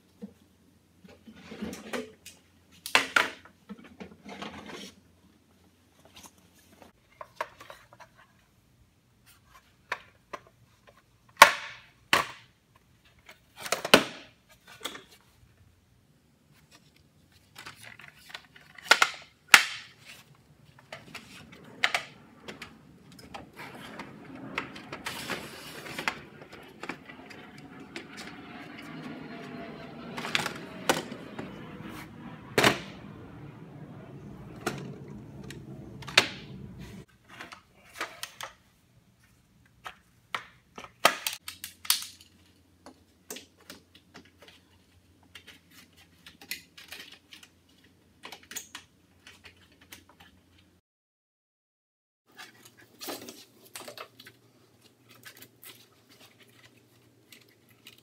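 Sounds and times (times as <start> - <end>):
low steady hum: 20.5 - 37.1.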